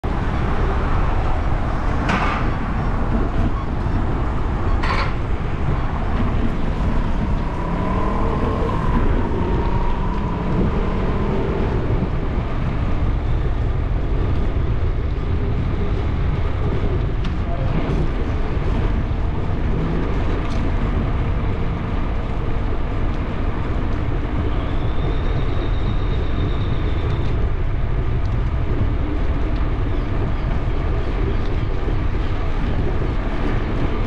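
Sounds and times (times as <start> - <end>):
street traffic passing: 0.0 - 34.0
wind rumbling on microphone: 0.0 - 34.0.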